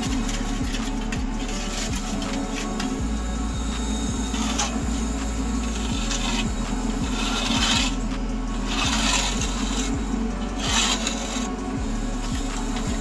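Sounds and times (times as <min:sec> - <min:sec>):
background music with low beat: 0:00.0 - 0:13.0
trowel scraping mortar: 0:00.0 - 0:13.0.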